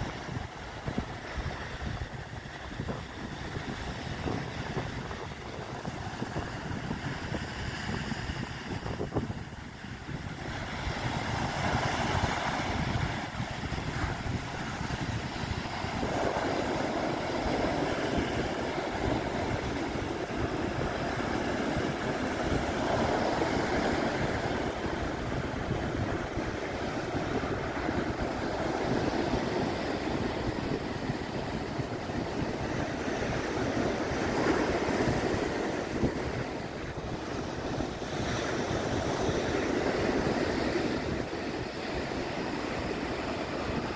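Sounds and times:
sea surf breaking: 0.0s - 43.9s
wind rumbling on microphone: 0.0s - 43.9s.

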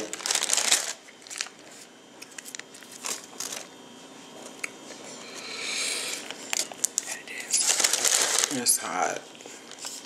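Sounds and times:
paper wrapper crinkling: 0.0s - 3.7s, 6.2s - 10.0s.

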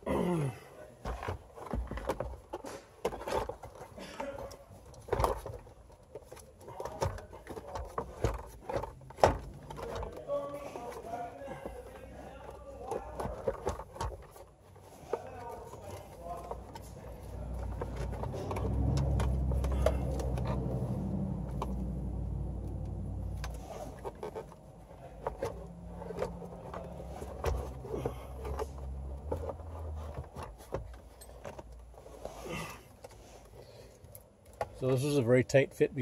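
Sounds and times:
plastic housing knocking and scraping: 1.0s - 20.8s, 23.3s - 31.8s.

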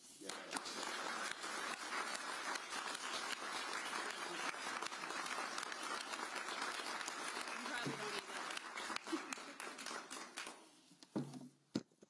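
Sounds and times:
crowd applauding: 0.2s - 10.8s.

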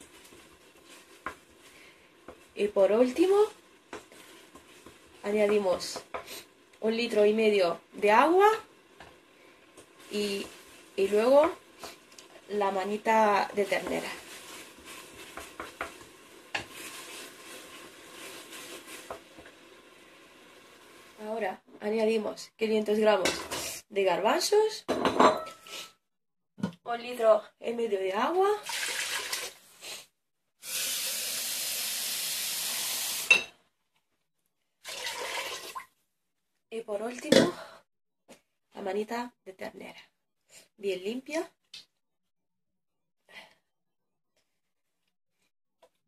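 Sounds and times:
spices sizzling in oil: 0.0s - 22.1s, 30.6s - 33.4s
water pouring into metal pot: 28.6s - 29.6s, 30.6s - 33.3s, 34.8s - 35.9s.

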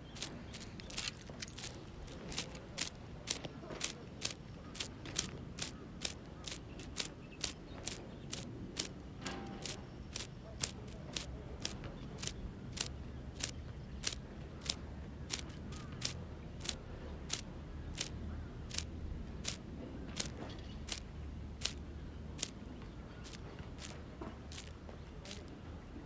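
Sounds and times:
spinning reel clicking: 0.1s - 18.1s, 18.7s - 19.6s, 21.6s - 21.8s, 23.2s - 23.9s, 24.5s - 24.7s.

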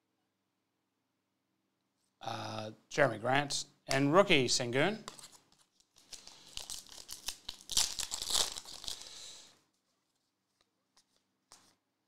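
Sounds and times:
wrapper tearing and crinkling: 5.2s - 9.4s.

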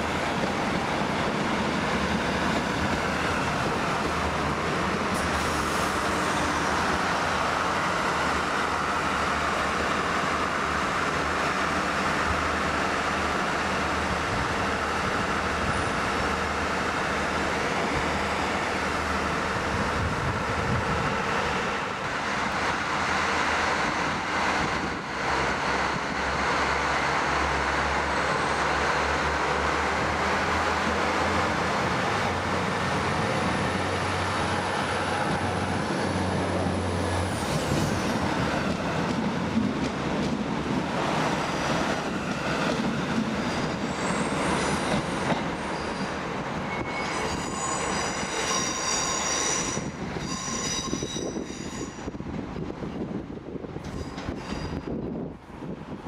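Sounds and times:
train running past: 0.0s - 56.0s
high-pitched wheel squeals: 43.5s - 52.1s, 53.9s - 54.9s.

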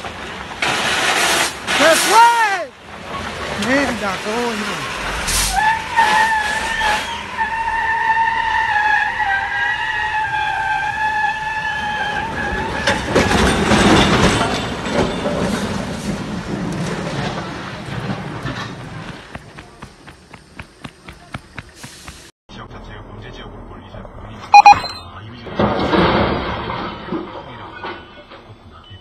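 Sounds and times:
truck crashing and scraping: 0.0s - 20.6s, 24.5s - 28.8s
shrill steady tone: 24.4s - 25.1s.

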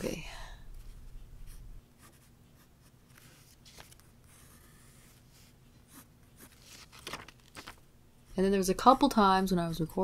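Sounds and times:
pencil scratching on paper: 1.5s - 3.5s, 4.2s - 6.7s.

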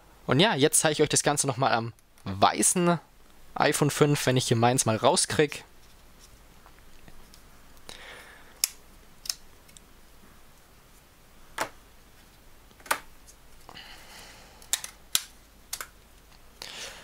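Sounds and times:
sharp plastic clicks and snaps: 8.6s - 9.9s, 14.6s - 16.0s.

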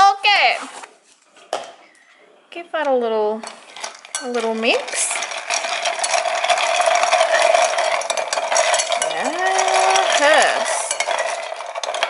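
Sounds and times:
ice and spoon clinking in glass: 3.4s - 12.0s.

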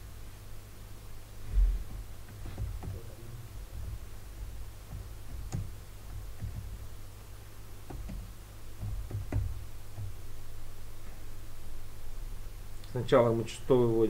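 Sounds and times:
steady low hum: 0.0s - 14.0s
keyboard keystrokes: 2.3s - 4.0s, 4.9s - 6.8s, 7.9s - 10.2s.

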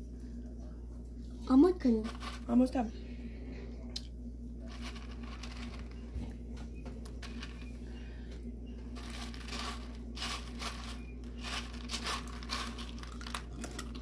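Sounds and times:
faint steady hum: 0.0s - 14.0s
dry cereal rustling in bowl: 1.9s - 2.8s, 4.6s - 6.1s, 7.2s - 7.8s, 8.9s - 14.0s.

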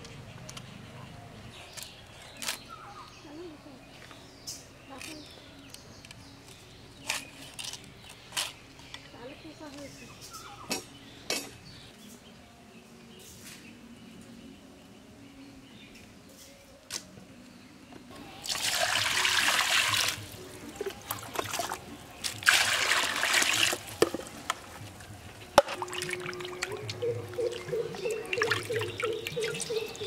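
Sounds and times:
water splashing and sloshing: 18.1s - 30.0s
water pouring into pan: 18.4s - 20.3s, 22.4s - 24.3s.

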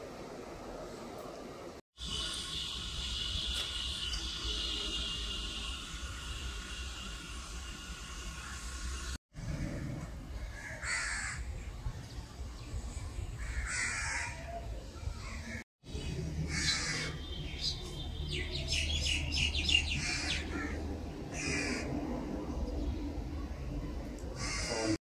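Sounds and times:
crows cawing: 10.5s - 11.4s, 13.4s - 14.4s, 16.5s - 17.2s, 21.4s - 21.9s, 24.4s - 25.0s
low rumble: 20.1s - 24.4s.

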